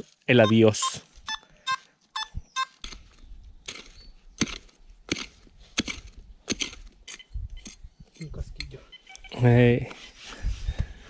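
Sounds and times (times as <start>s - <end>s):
metal detector beeps: 0.4s - 4.1s, 7.1s - 7.8s, 8.8s - 9.5s
digging tool striking ground: 2.8s - 8.7s.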